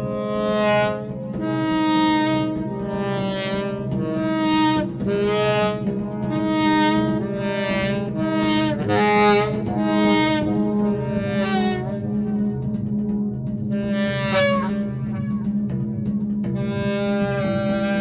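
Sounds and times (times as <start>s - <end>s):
saxophone playing long notes: 0.0s - 15.7s, 16.5s - 18.0s
steady low drone: 0.0s - 18.0s.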